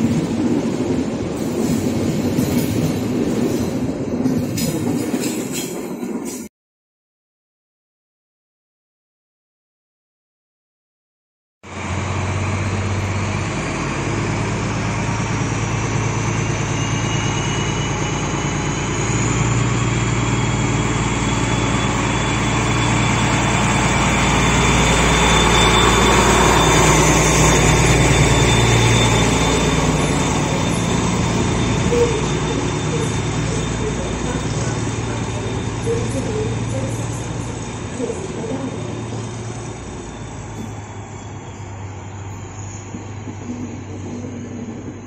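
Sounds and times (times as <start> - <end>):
diesel locomotive engine: 0.0 - 6.5, 11.6 - 45.0
turbocharger whine: 11.7 - 45.0.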